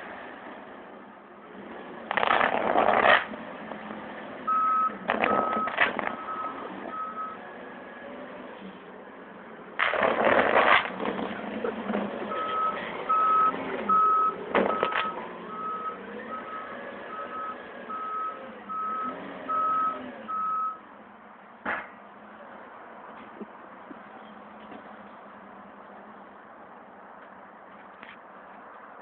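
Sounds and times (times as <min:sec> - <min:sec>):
forklift engine: 0:00.0 - 0:21.1
reversing alarm beeps: 0:04.5 - 0:07.4, 0:12.3 - 0:20.8.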